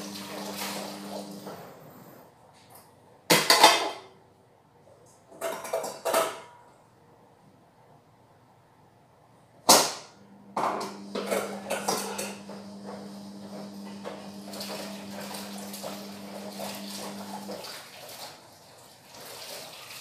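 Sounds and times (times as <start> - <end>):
dishes and utensils clattering: 5.3 - 6.7, 10.6 - 13.2.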